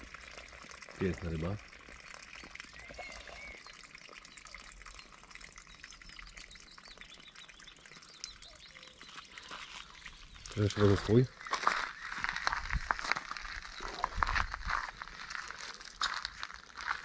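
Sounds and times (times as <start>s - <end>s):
faint bird chirps: 2.2s - 15.1s.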